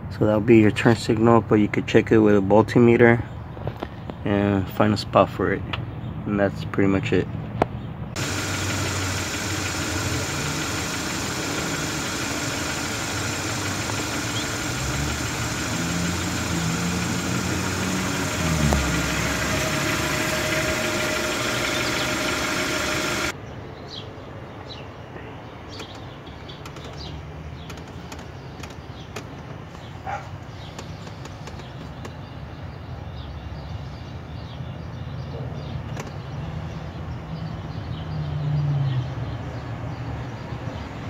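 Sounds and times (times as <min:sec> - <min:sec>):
car engine idling: 0:08.2 - 0:23.3.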